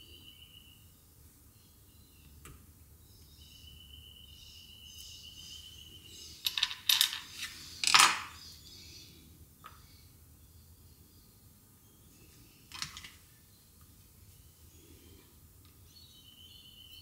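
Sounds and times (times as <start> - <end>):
small metal tool clattering on wood: 6.4 - 8.4.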